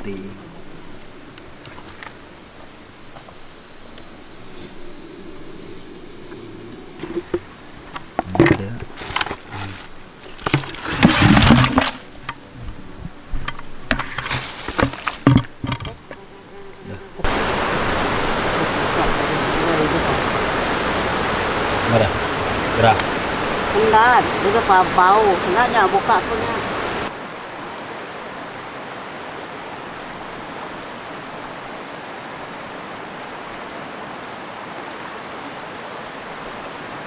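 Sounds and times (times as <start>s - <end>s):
high insect buzz: 0.0s - 27.2s
plastic buckets knocking on pebbles: 7.0s - 16.1s
river rushing: 17.1s - 37.0s.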